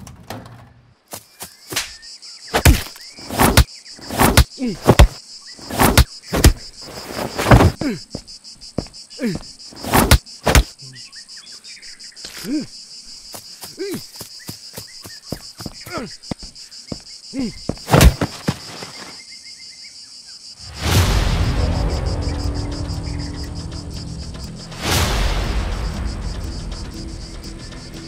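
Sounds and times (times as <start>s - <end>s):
insects chirring: 0.4s - 28.0s
loud sharp thuds: 1.7s - 6.6s, 17.7s - 18.8s
man groaning: 7.8s - 8.1s, 9.2s - 9.4s, 15.9s - 16.1s, 17.4s - 17.6s.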